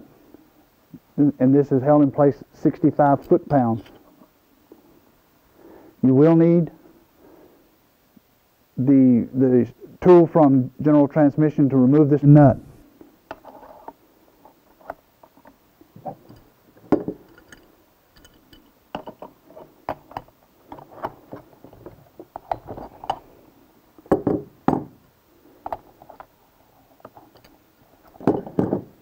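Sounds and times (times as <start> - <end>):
metal hand tools clinking: 17.1 - 20.3.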